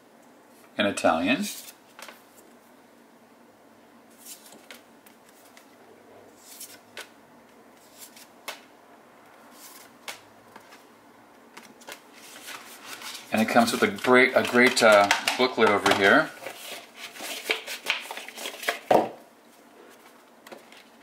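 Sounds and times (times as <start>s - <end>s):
cards rustling and sliding: 1.4s - 2.6s, 4.1s - 8.7s, 9.4s - 10.9s, 11.5s - 19.0s.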